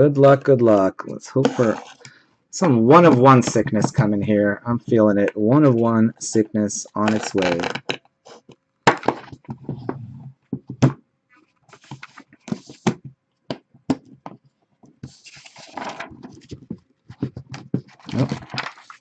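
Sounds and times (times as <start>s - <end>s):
paper rustling: 11.4s - 12.9s, 15.0s - 19.0s.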